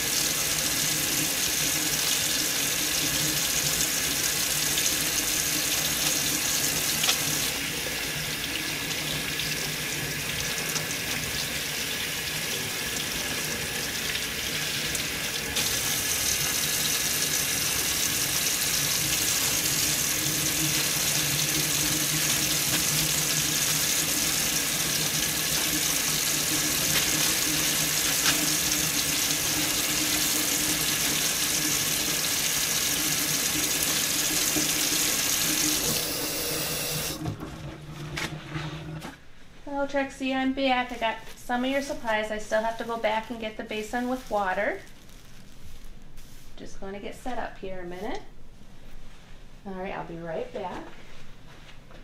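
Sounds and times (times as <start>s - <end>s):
tap water running into sink: 0.0s - 37.2s
hands washing under water: 19.2s - 36.1s.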